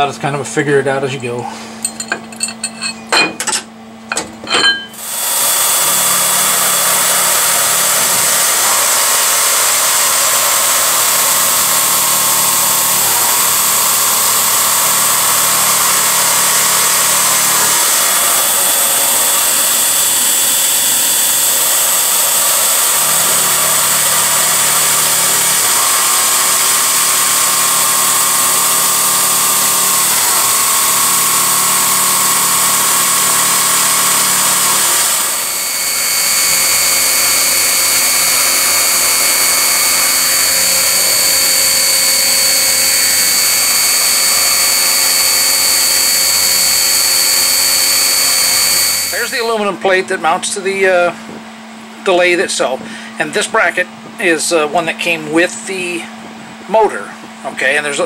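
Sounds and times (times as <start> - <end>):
metal tools clinking: 1.8 - 5.0
milling machine spindle whine: 4.4 - 58.0
loud steady hiss: 5.0 - 49.8.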